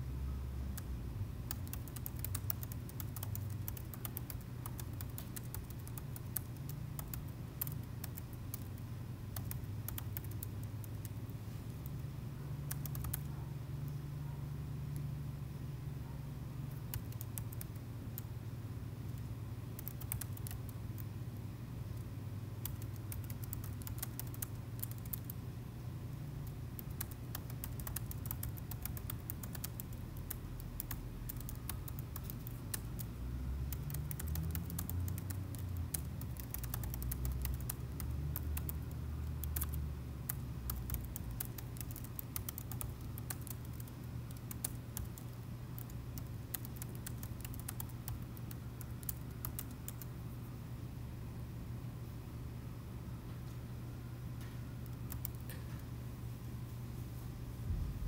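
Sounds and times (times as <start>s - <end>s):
laptop keyboard typing: 0.7s - 12.0s, 12.6s - 14.0s, 16.7s - 18.4s, 19.1s - 21.1s, 22.6s - 25.4s, 26.4s - 50.1s, 54.8s - 55.6s.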